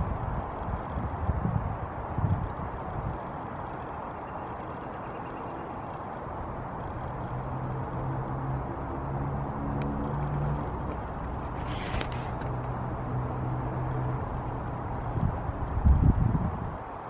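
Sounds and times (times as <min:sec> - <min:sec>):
vehicle engine humming: 0:00.0 - 0:17.0
scratchy rustle: 0:11.3 - 0:12.6.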